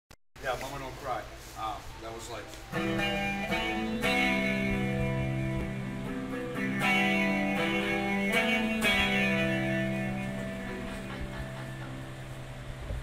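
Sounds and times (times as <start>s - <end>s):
electric guitar strumming chords: 2.7s - 13.0s.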